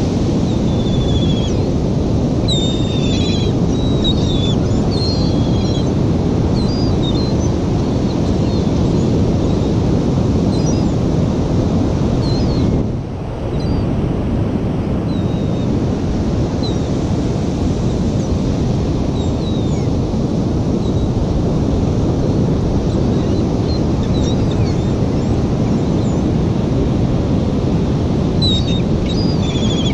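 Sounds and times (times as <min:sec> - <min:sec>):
wind buffeting microphone: 0:00.0 - 0:29.9
gulls calling: 0:00.4 - 0:11.0, 0:22.9 - 0:26.2, 0:28.4 - 0:29.9.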